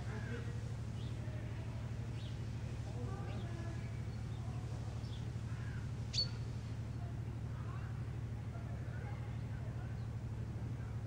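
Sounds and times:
steady low hum: 0.0 - 11.0
faint bird calls: 3.4 - 6.7.

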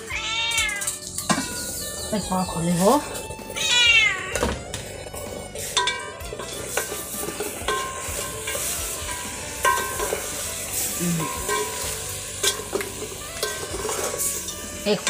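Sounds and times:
meat sizzling in a pot: 4.3 - 15.0
wooden spatula scraping a pot: 4.7 - 15.0.

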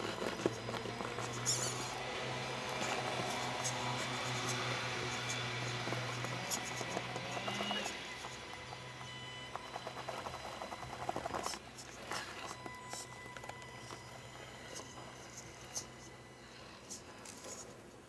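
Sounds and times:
electric motor and gearbox whine: 0.0 - 18.0
tyres clicking and scraping on stone: 2.7 - 14.0.

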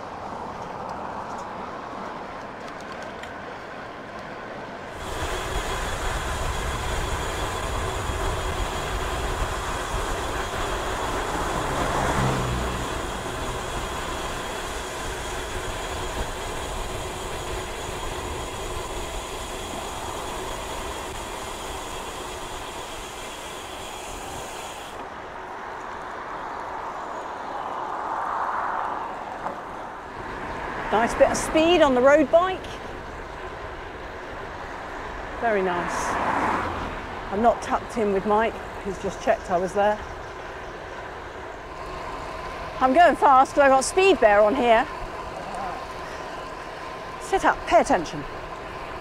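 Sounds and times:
bicycle tyre and wind noise: 0.0 - 49.0.

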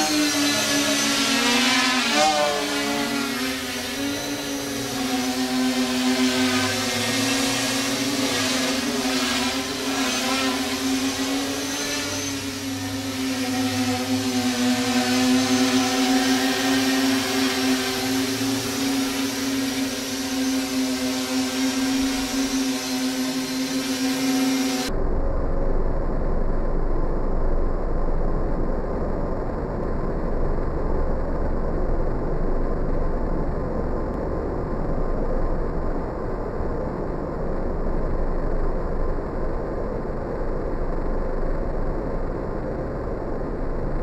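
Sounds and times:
drone motors humming: 0.0 - 44.0
muffled low rushing noise: 24.9 - 44.0.

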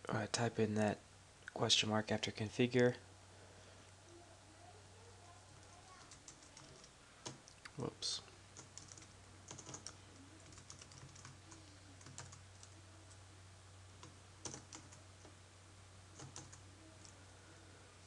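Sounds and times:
keyboard typing: 5.6 - 7.6, 8.6 - 13.2, 14.0 - 15.4, 16.2 - 17.2.

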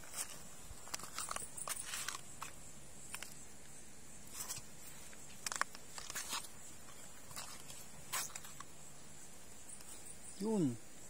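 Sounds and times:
high insect drone: 0.0 - 11.0.

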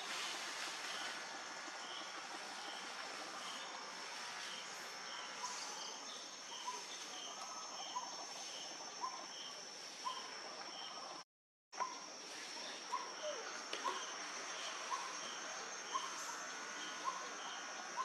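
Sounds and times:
insects buzzing: 11.8 - 18.0.

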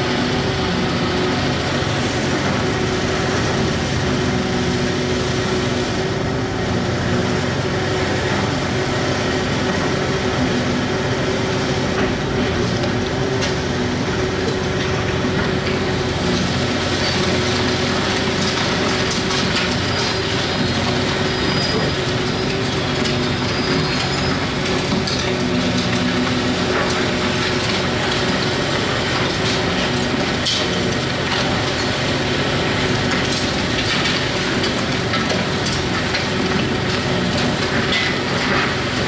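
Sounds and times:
excavator diesel engine running: 0.0 - 39.0
high squeal: 21.2 - 22.6.

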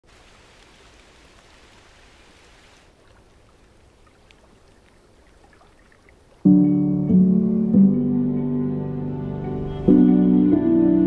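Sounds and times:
light rain on lake surface: 0.0 - 6.8.

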